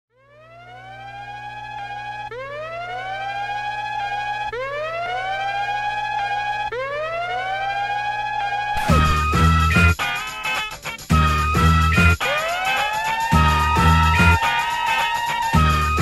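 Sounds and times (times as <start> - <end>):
siren wailing: 0.1 - 10.0, 11.5 - 16.0
drum-heavy music: 8.8 - 16.0.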